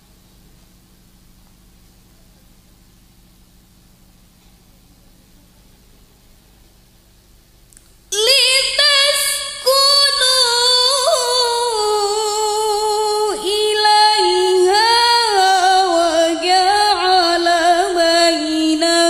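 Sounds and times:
woman reciting melodically: 8.1s - 19.0s.

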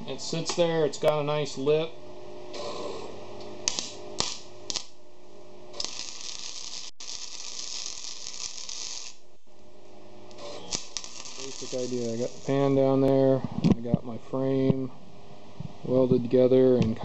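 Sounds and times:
welding arc crackling: 2.5s - 13.4s.

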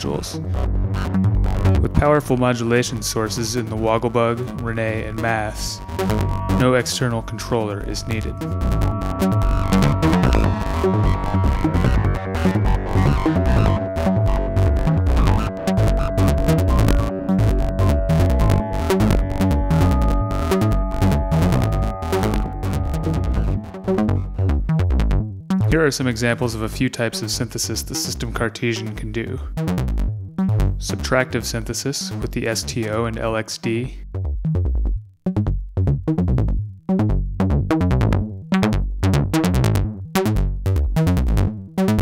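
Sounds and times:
deep bass pulse: 0.0s - 26.8s, 29.0s - 33.3s, 34.0s - 42.0s
held synth tones: 3.1s - 25.0s
clicky percussive synth hits: 4.4s - 25.7s.

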